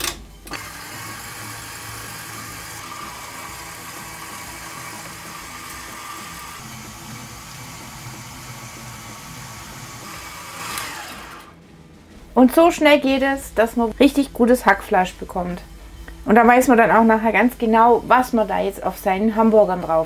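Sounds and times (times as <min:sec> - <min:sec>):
stand mixer meat grinder running: 0:00.5 - 0:11.6.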